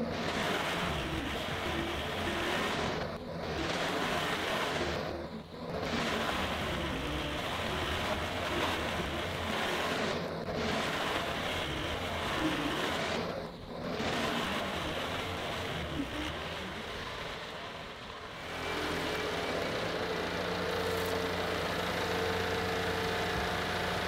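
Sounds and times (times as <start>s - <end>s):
diesel engine under load: 0.0s - 24.0s.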